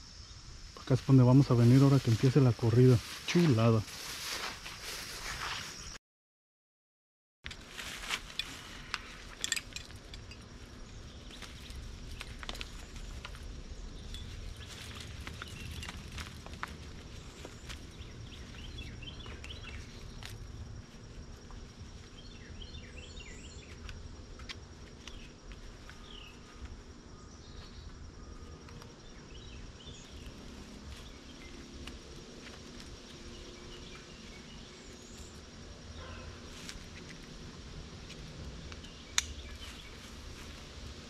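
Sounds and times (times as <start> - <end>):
insects buzzing: 0.0 - 6.0, 7.6 - 41.0
harness straps rustling and clicking: 7.5 - 22.1
birds chirping: 8.5 - 40.8.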